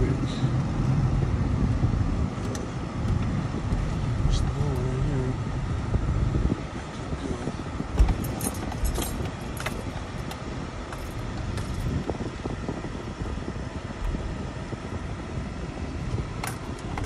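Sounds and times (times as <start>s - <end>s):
car engine and tyres rumbling: 0.0s - 17.0s
dull thump: 7.9s - 9.8s
light metallic clicks and jingles: 8.0s - 11.9s.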